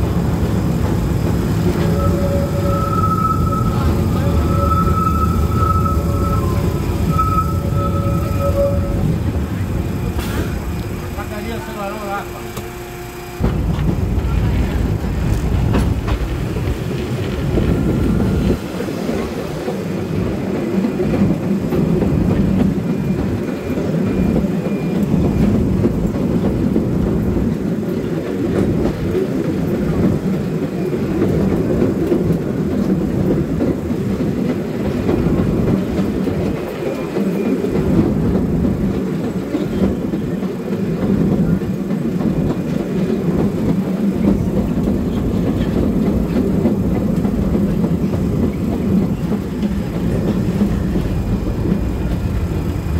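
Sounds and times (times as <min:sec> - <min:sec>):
tram wheels rumbling on rails: 0:00.0 - 0:52.9
faint high squeal: 0:01.7 - 0:09.3.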